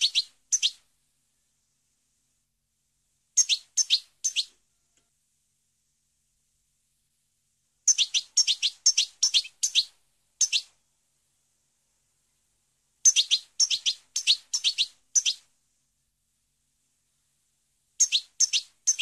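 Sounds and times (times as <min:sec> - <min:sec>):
goldfinch chirping: 0:00.0 - 0:00.8, 0:03.4 - 0:04.5, 0:07.9 - 0:10.7, 0:13.0 - 0:15.4, 0:18.0 - 0:19.0.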